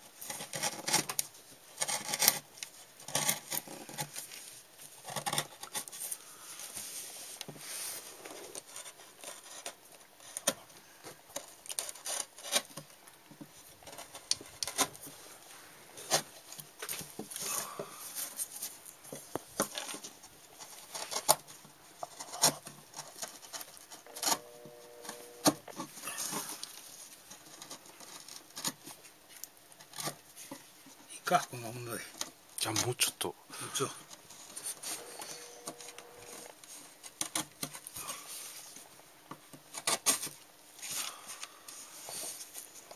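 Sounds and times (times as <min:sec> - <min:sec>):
carving gouge cutting wood: 0:01.8 - 0:02.4, 0:22.1 - 0:26.6, 0:34.5 - 0:36.5.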